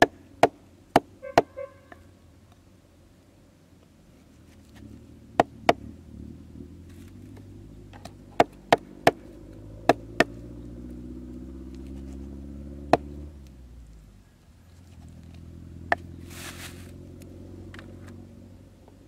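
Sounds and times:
low engine hum: 0.0 - 19.0
cleaver chopping meat on wood: 9.8 - 10.3, 12.9 - 13.1.

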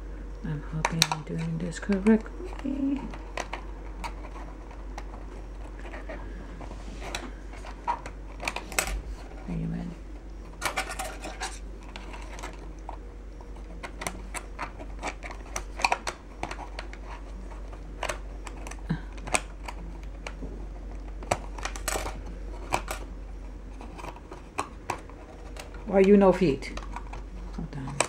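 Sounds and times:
plastic cover clattering: 10.5 - 12.8, 21.0 - 23.0.

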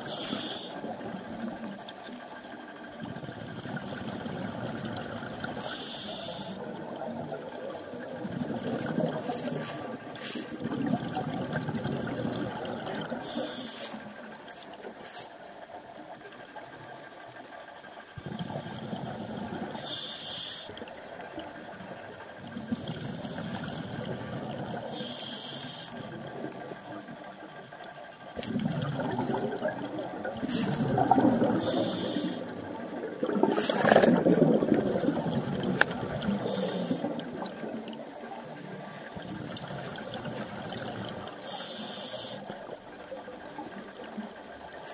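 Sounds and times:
hissing regulator inhalations: 0.0 - 0.9, 5.6 - 6.7, 13.2 - 14.1, 19.8 - 20.8, 24.9 - 26.1, 30.4 - 32.6, 36.3 - 37.2, 41.4 - 42.6
exhaled bubbles burbling: 3.0 - 14.2, 18.2 - 19.9, 20.7 - 25.0, 28.3 - 41.5.

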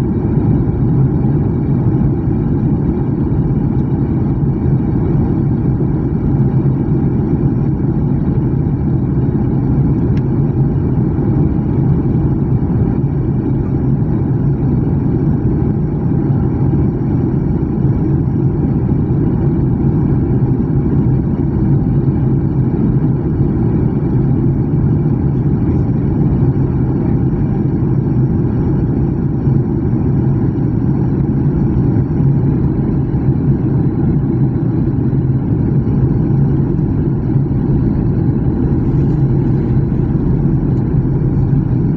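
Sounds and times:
jet engines roaring in cabin: 0.0 - 41.9
low hum: 0.0 - 41.9.

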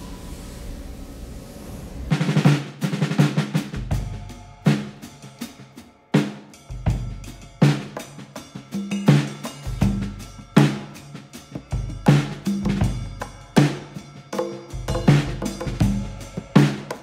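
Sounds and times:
steady hiss: 0.0 - 3.2
drum kit beat: 2.1 - 17.0.

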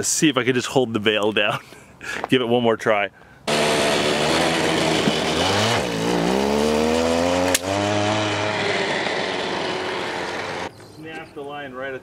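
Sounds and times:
small gasoline engine straining: 3.5 - 10.7.

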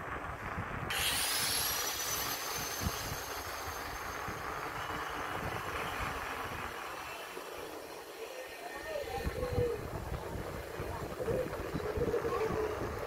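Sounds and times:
wind rumbling on microphone: 0.0 - 8.1, 8.7 - 13.0
bike tyre noise on road: 0.0 - 13.0
thin high whine: 0.8 - 13.0.

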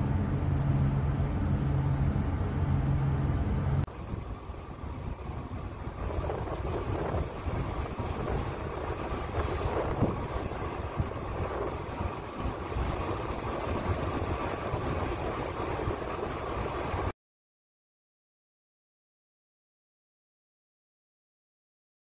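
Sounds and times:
sea water rushing along hull: 0.0 - 17.1
wind buffeting microphone: 0.0 - 17.1.

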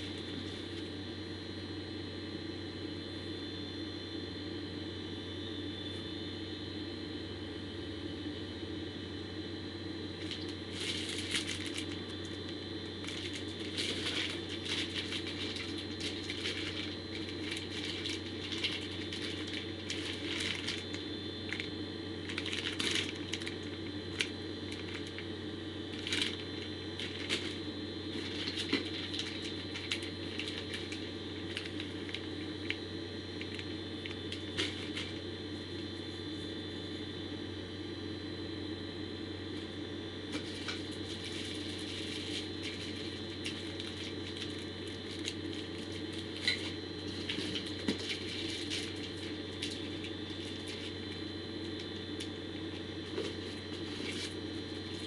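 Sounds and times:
steady background hum: 0.0 - 55.0
plastic bags crinkling: 10.2 - 12.4, 13.0 - 25.2, 25.9 - 32.8, 33.4 - 35.2, 40.4 - 51.1, 51.7 - 55.0.

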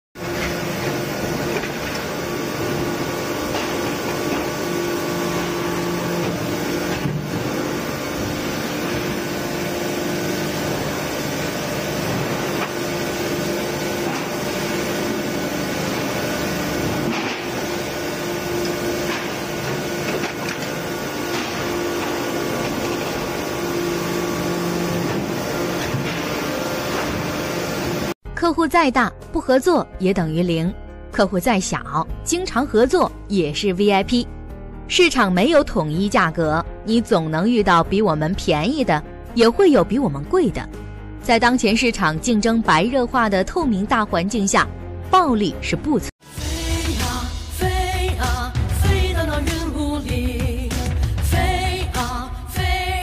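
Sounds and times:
press machine humming and whining: 0.2 - 28.2.

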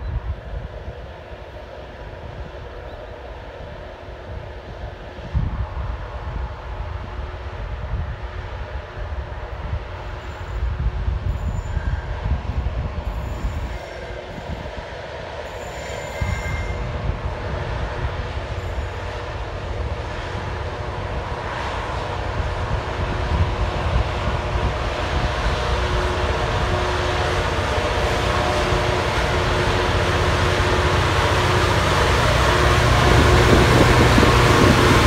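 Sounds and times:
diesel locomotive rumbling: 0.0 - 35.0.

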